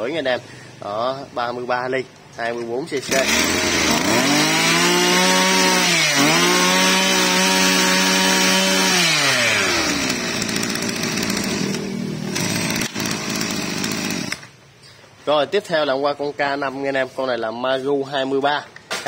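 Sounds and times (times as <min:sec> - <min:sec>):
brush cutter engine revving and idling: 0:03.0 - 0:14.5.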